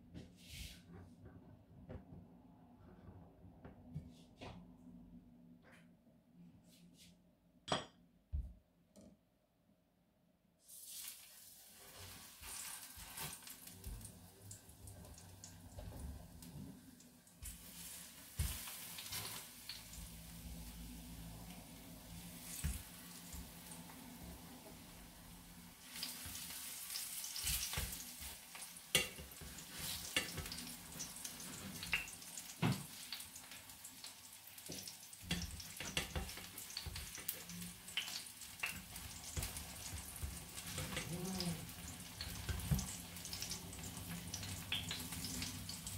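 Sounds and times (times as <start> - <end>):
banana sizzling in hot oil: 10.6 - 45.9.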